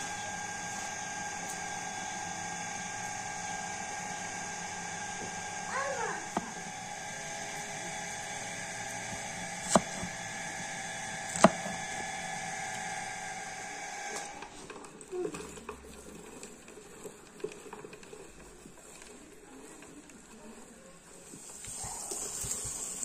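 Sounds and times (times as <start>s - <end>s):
steady hum: 0.0s - 14.4s
meat grinder clicking and rattling: 0.0s - 23.0s.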